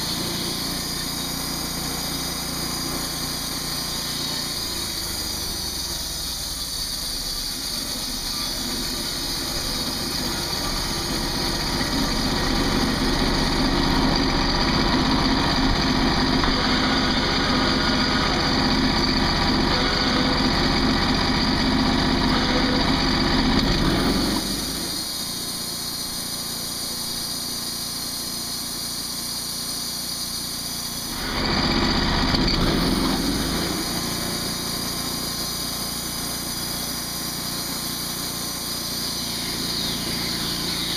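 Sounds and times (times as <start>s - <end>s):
band sawmill engine running: 0.0s - 40.9s.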